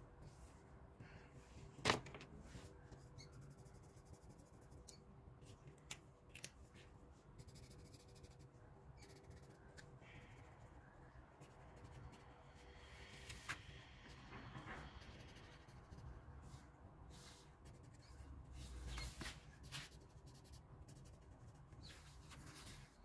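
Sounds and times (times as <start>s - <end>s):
marker pens scratching on paper: 7.4s - 10.3s.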